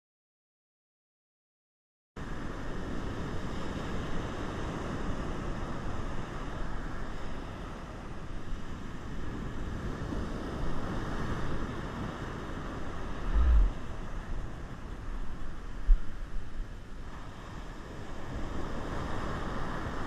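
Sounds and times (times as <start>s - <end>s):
ocean surf breaking: 2.2s - 20.0s
wind rumble on microphone: 2.2s - 20.0s
low thump on microphone: 13.2s - 13.8s.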